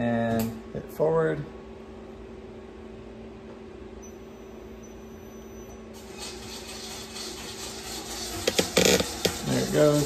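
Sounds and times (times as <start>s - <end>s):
mill spindle humming: 0.0s - 10.0s
hiss: 6.0s - 10.0s.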